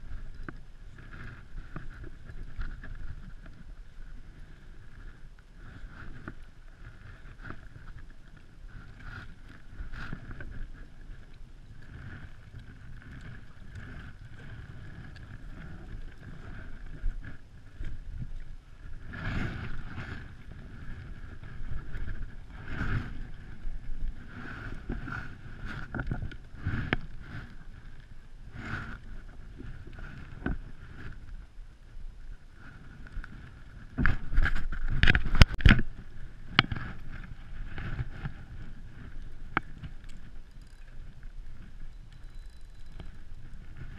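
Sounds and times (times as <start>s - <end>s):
wind rumbling on microphone: 0.0s - 43.9s
knocks and scrapes on plastic kayak: 18.9s - 27.8s, 33.8s - 40.3s
rustling: 32.2s - 43.9s.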